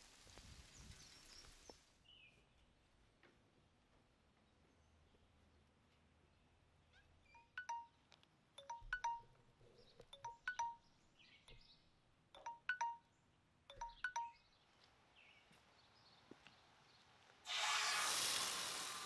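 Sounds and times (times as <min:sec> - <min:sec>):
light chime notes: 0:07.4 - 0:08.0, 0:08.6 - 0:09.3, 0:10.2 - 0:10.9, 0:12.4 - 0:13.0, 0:13.7 - 0:14.4.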